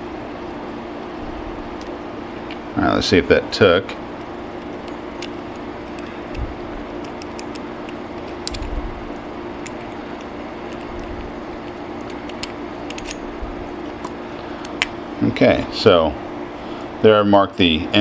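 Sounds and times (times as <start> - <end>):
steady low hum: 0.0 - 18.0
metal parts clicking and tapping: 7.0 - 8.7, 9.6 - 13.2.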